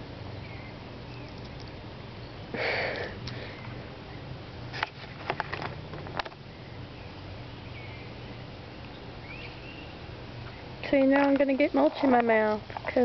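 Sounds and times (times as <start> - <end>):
clicks and crackles of pawing: 4.7 - 6.4.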